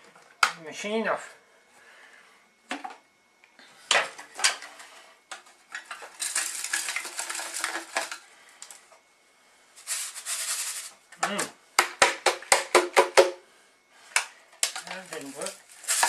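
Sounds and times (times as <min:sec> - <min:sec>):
crumbs rattling in a jug: 0:05.8 - 0:08.3, 0:09.8 - 0:11.0, 0:14.6 - 0:16.0.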